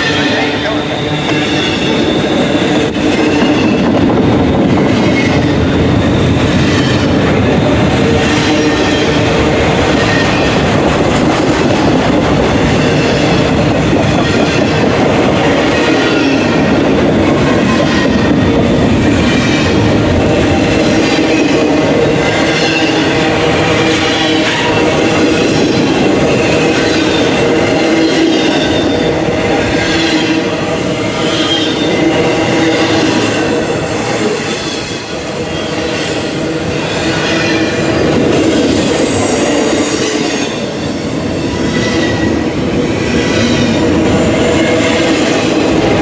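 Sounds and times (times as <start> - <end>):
high wheel squeal: 0.0 - 3.9, 23.8 - 42.4
freight train wheels rumbling on rail: 0.0 - 46.0.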